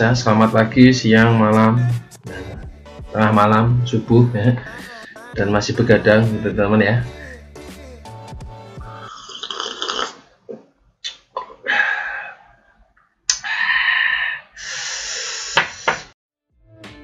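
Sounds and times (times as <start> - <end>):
man slurping coffee: 8.9 - 11.6.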